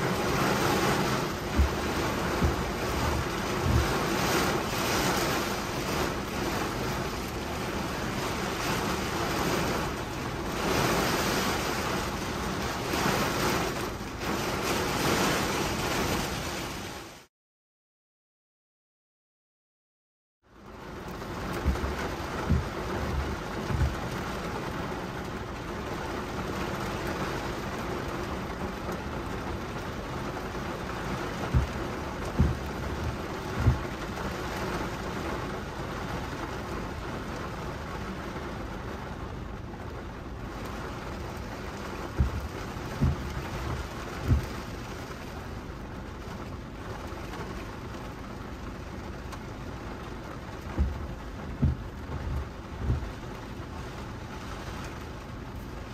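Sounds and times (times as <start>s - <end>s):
heavy rain on car windshield: 0.0s - 17.3s, 20.5s - 55.9s
brief low thumps: 31.5s - 32.9s, 42.1s - 44.6s, 50.7s - 53.3s.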